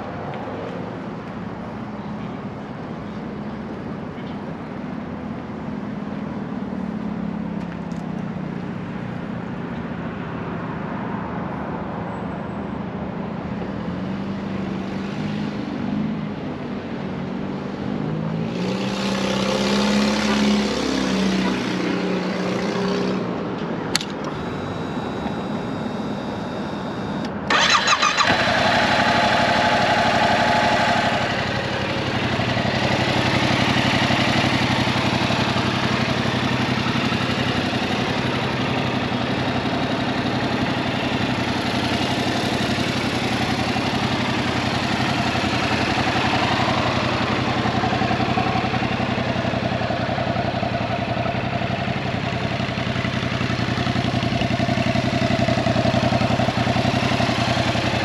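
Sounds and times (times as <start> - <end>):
vehicle engines humming: 0.0 - 58.0
motorcycle engine starting: 23.9 - 58.0
vehicle passing: 24.2 - 58.0.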